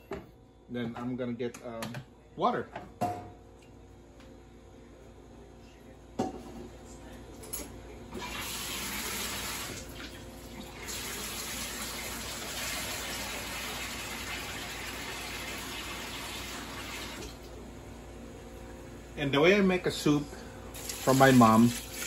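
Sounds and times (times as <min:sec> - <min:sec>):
water pouring from tap: 0:08.2 - 0:17.3, 0:20.8 - 0:22.0.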